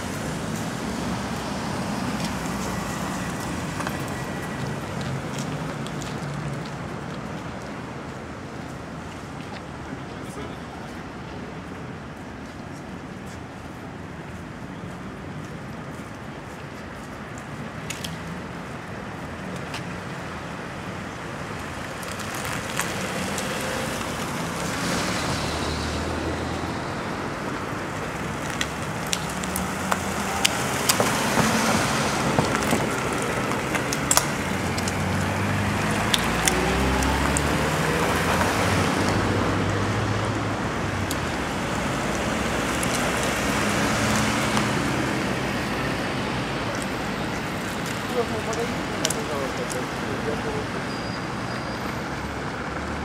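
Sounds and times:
cars driving past: 0.0 - 8.0, 17.9 - 53.0.

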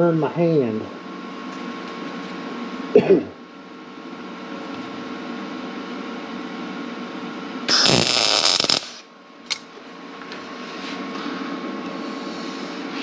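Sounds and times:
steady background hum: 0.0 - 13.0
welding arc crackling: 7.7 - 9.1.

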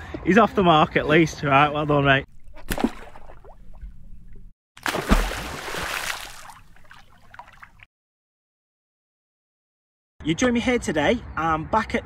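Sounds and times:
water bubbling and trickling: 2.3 - 7.9
water splash with thud: 2.4 - 3.9, 4.8 - 7.9.

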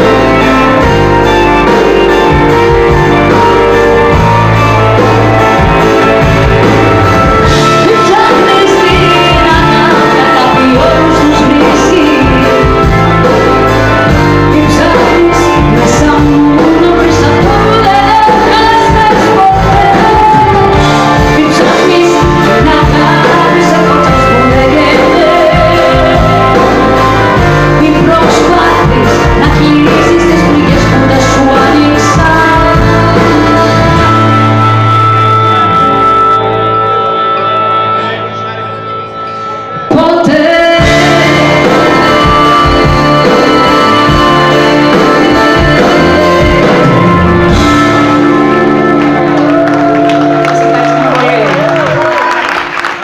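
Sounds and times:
pop-rock band playing: 0.0 - 53.0
woman singing into microphone: 7.4 - 13.3, 14.1 - 34.8, 39.9 - 48.2.

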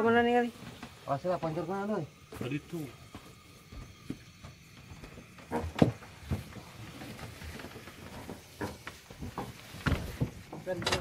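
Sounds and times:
knocks and thumps on boat: 3.8 - 11.0.

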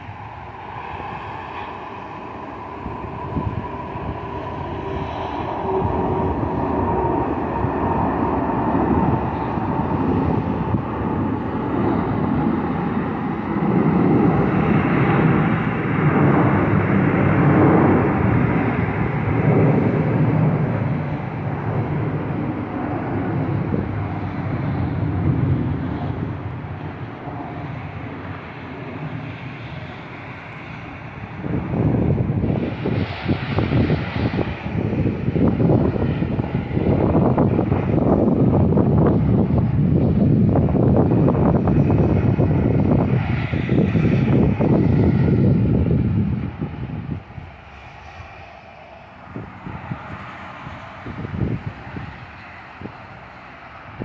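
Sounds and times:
jet airliner passing overhead: 0.0 - 54.0.

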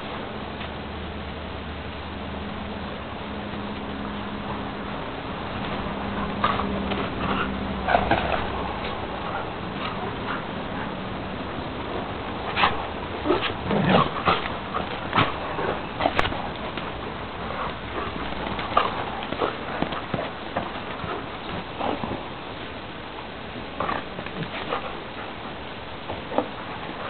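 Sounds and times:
dogs growling and barking: 5.3 - 22.5, 23.6 - 25.5
dogs scuffling: 5.3 - 22.7, 23.6 - 27.0.

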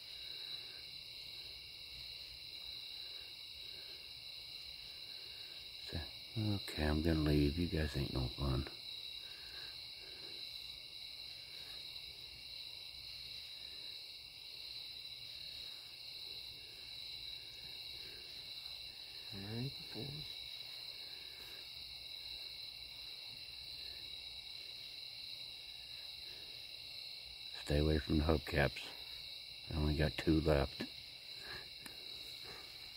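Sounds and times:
crickets chirping: 0.0 - 32.9
low human voice: 19.3 - 20.3.

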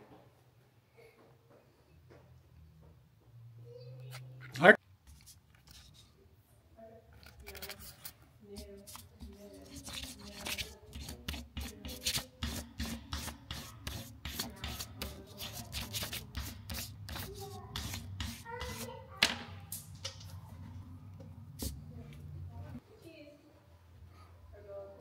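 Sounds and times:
crayon scratching on paper: 7.4 - 19.0.

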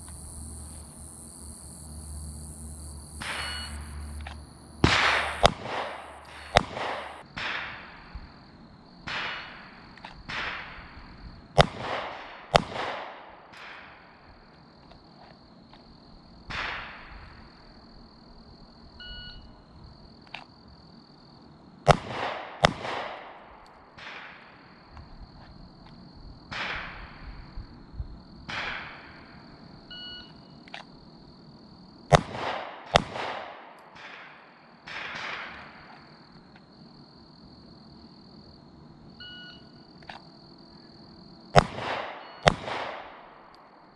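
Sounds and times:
pistol shots echoing: 4.8 - 7.9, 11.6 - 14.2, 21.9 - 24.7, 32.1 - 35.9, 41.6 - 43.9.

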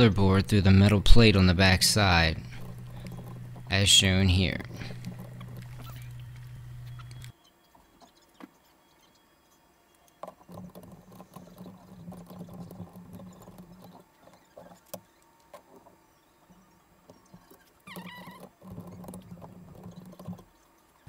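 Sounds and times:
low steady hum: 0.0 - 21.0
small hardware clicking and scratching: 2.4 - 7.4, 10.1 - 16.0, 17.1 - 21.0.

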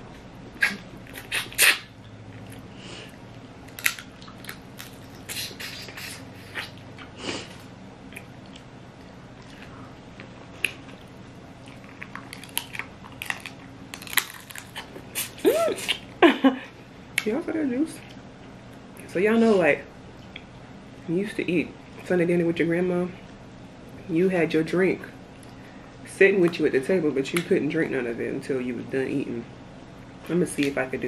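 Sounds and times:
chewing: 0.5 - 16.0
crab shells cracking: 3.7 - 5.2, 12.0 - 14.9.

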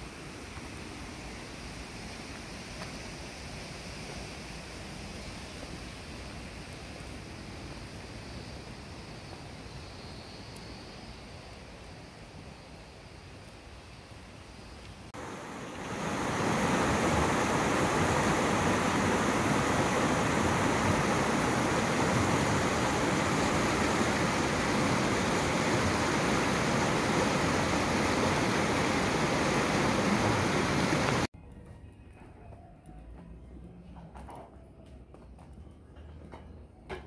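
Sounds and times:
water rushing: 15.1 - 31.3.

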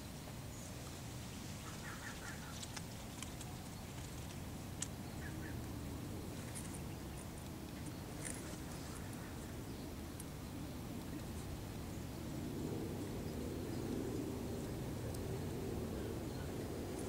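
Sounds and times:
steady low rumble: 0.0 - 17.0
faint bird chirps: 1.6 - 4.1, 4.8 - 5.6
light clicks: 2.4 - 5.0.

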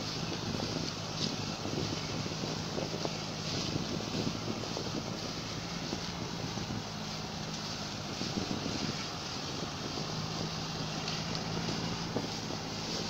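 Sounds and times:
heavy diesel engines running: 0.0 - 13.0.

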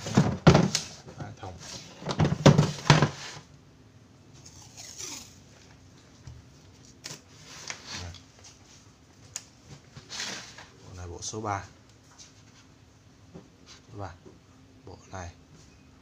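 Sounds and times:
plastic case clattering on tile: 2.0 - 3.2.

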